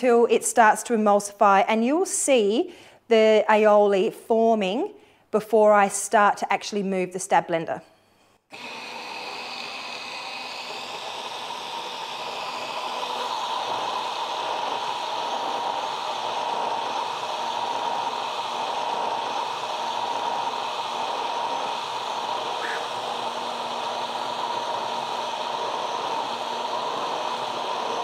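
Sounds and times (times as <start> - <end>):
stick blender whirring: 8.5 - 28.0.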